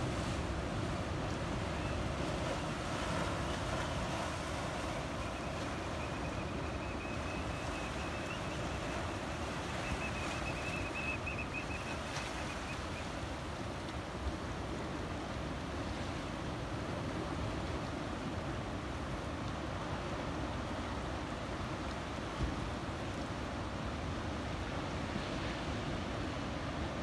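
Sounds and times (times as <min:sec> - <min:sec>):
surf rushing through rocks: 0:00.0 - 0:12.7.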